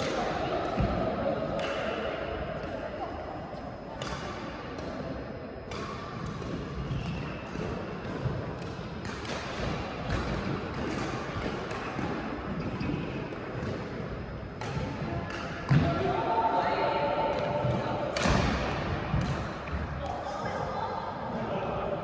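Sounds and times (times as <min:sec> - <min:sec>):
rackets hitting shuttlecock: 0:00.0 - 0:02.0, 0:05.7 - 0:16.1, 0:17.3 - 0:20.6
sports hall hubbub: 0:00.0 - 0:22.0.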